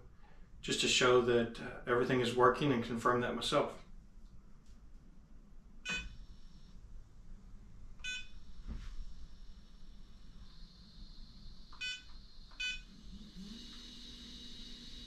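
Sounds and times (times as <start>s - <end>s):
hand controller beeps: 5.9s - 6.2s, 8.0s - 8.4s, 11.7s - 12.9s
motors slewing with electric whine: 8.4s - 15.0s.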